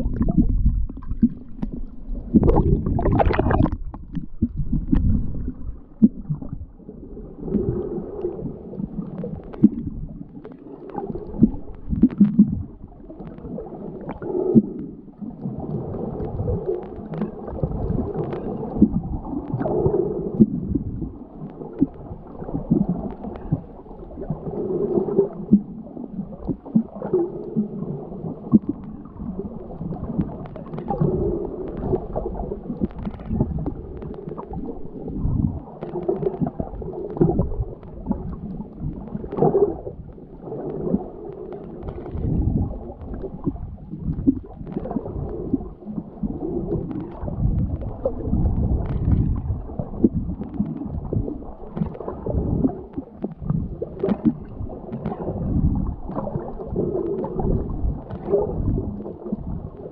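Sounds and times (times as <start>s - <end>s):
water splash: 0.0s - 6.6s
underwater gurgling and sloshing: 0.0s - 59.9s.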